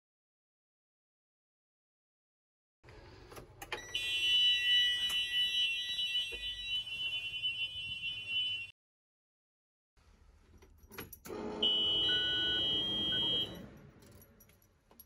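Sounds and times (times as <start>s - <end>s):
high-pitched warning buzzer: 11.3s - 13.7s.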